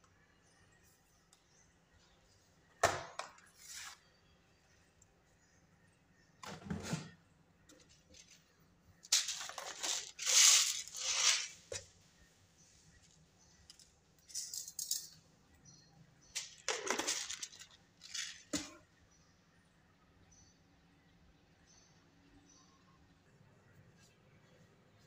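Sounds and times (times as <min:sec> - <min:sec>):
kitchen items rustling and rattling: 0:06.4 - 0:11.9, 0:12.8 - 0:15.2, 0:16.3 - 0:18.8.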